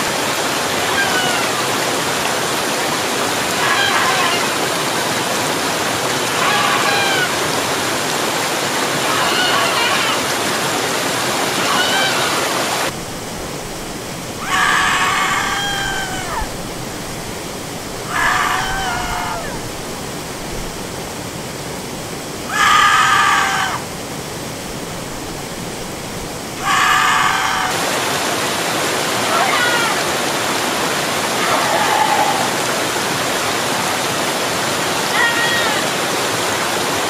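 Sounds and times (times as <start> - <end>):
waterfall rushing: 0.0 - 37.0
person screaming: 3.6 - 4.6, 14.4 - 16.5, 18.1 - 19.6, 26.6 - 27.8, 29.2 - 30.1, 31.4 - 32.6.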